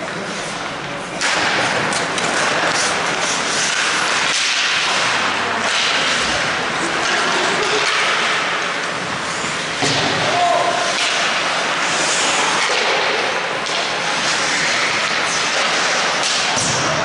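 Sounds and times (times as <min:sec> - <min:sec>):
hockey sticks and puck clacking: 0:00.0 - 0:17.0
skates scraping ice: 0:00.0 - 0:17.0.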